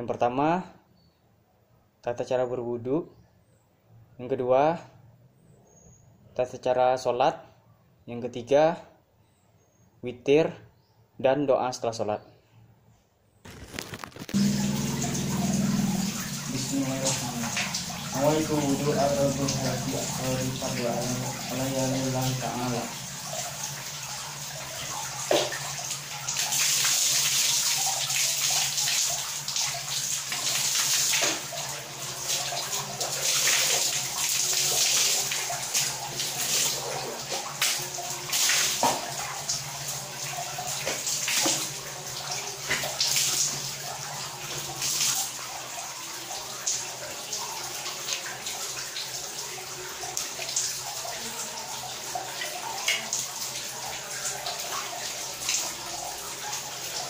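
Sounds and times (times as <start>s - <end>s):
water splashing and pouring: 13.5s - 57.0s
steady low hum: 14.4s - 23.9s.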